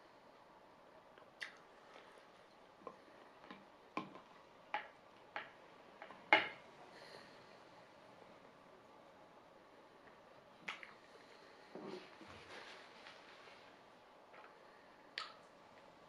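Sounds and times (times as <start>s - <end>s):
mouth smacking while eating: 1.2s - 1.7s, 15.2s - 15.5s.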